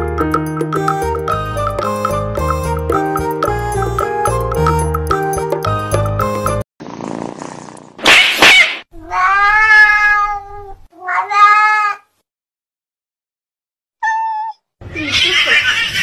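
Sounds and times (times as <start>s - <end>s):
jingly music: 0.0s - 6.6s
cat hissing: 6.8s - 10.1s
cat yowling: 8.1s - 12.1s, 14.0s - 16.0s.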